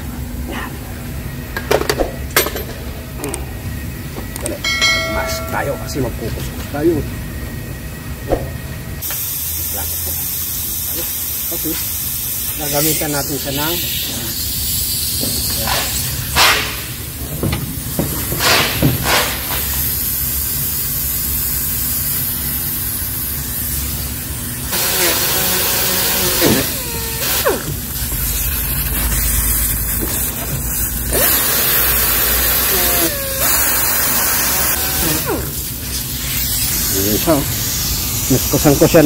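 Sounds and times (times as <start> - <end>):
air sander hissing on plastic: 9.0 - 17.2, 17.8 - 39.0.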